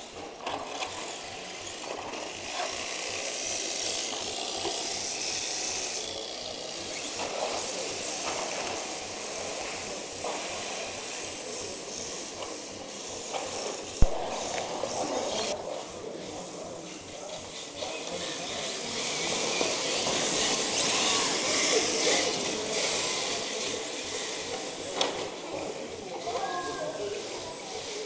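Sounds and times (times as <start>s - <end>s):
toy car motor whine: 0.0s - 28.0s
tyres sliding on floor: 6.6s - 28.0s.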